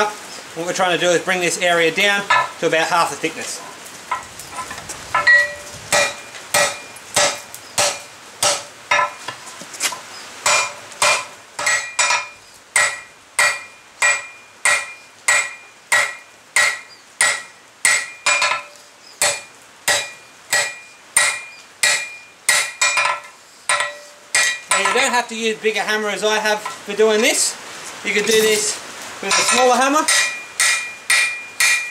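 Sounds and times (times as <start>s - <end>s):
hammer striking steel on anvil: 2.3s - 2.6s, 5.2s - 9.2s, 10.4s - 25.1s, 29.3s - 31.9s.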